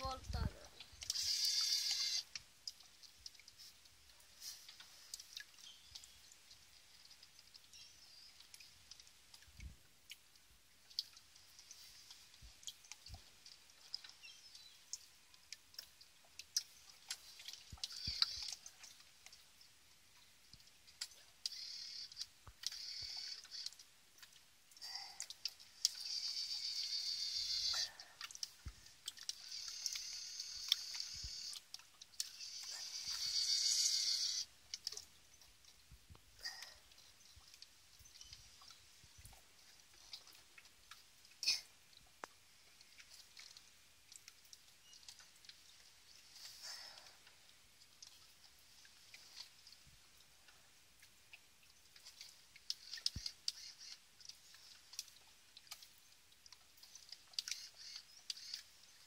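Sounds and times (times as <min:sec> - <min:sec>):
small electric motor whining: 0:01.1 - 0:02.3.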